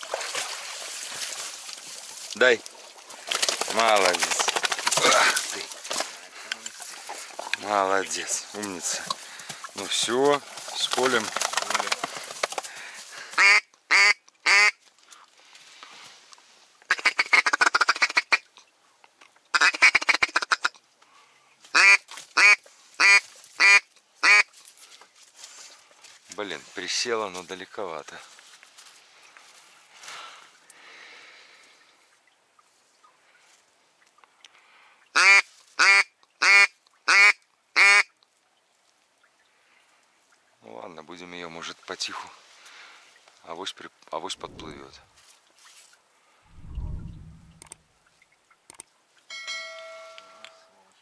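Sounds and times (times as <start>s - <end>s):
duck quacking: 13.4s - 14.8s, 21.8s - 24.5s, 35.2s - 38.1s.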